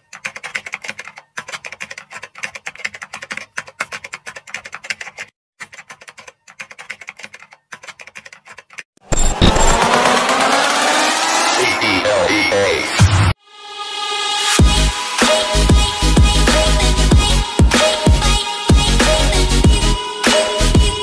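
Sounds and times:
loud electronic music: 9.2s - 21.0s.

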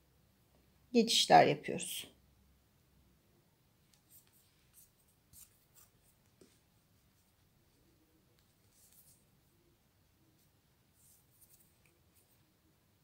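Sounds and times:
needle rustling through yarn: 3.8s - 13.0s.

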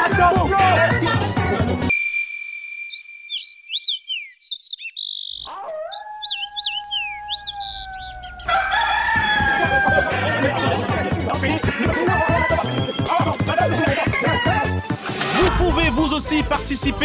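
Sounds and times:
music: 0.0s - 1.9s, 9.2s - 17.0s
thin steady high tone: 1.9s - 3.7s
bird-like chirps: 1.9s - 8.6s
dog-like howl: 5.5s - 8.9s.

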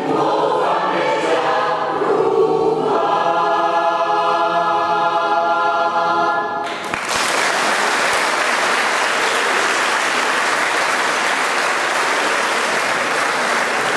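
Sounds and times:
choir holding chord: 0.0s - 6.6s
audience applause: 6.7s - 13.9s.

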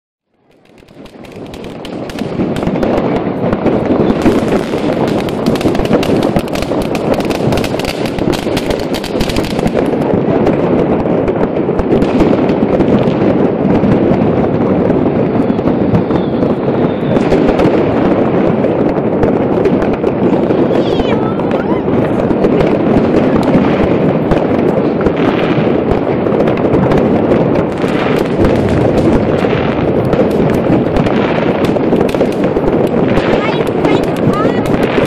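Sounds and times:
fireworks and firecrackers bangs: 0.3s - 35.0s.

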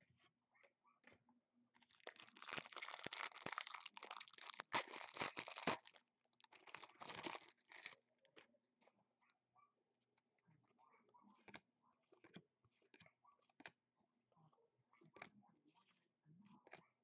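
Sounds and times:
plastic wrapper crinkling: 1.9s - 8.0s.

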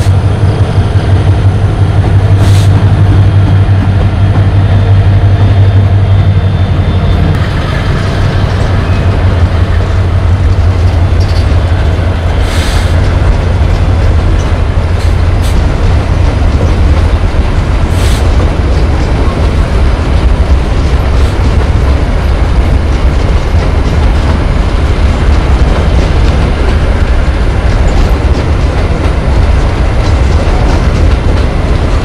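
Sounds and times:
locomotive engine drone: 0.0s - 32.0s.

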